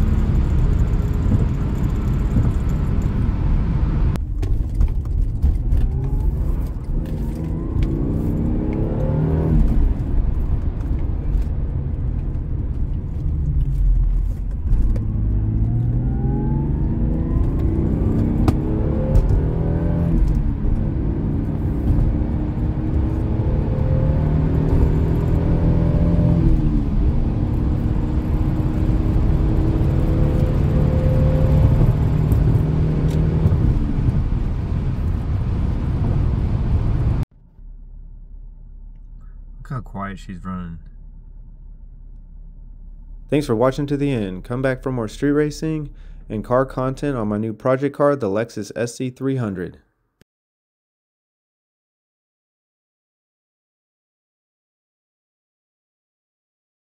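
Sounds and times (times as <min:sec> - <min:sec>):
car engine accelerating through gears: 0:00.0 - 0:37.7.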